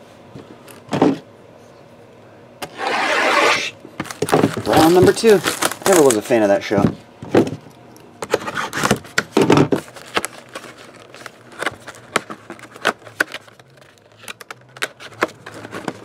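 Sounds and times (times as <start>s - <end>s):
cardboard crinkling: 2.8s - 6.4s, 9.8s - 16.0s.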